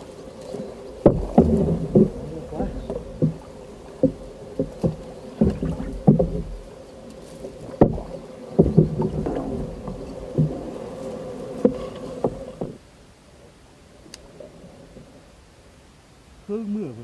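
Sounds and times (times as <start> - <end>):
reeds scraping and rustling: 0.0 - 12.8
knocks on wooden hull: 1.0 - 6.7, 7.7 - 10.7.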